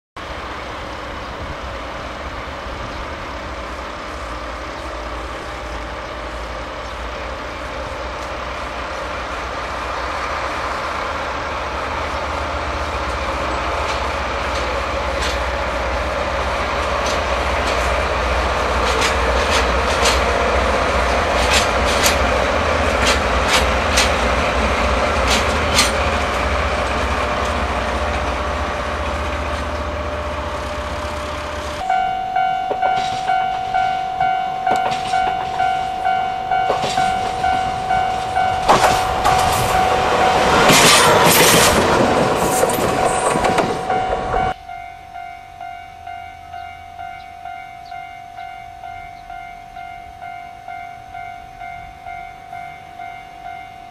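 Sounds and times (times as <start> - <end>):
train rumble: 0.2 - 53.9
wheels clicking over rail joints: 10.3 - 44.7.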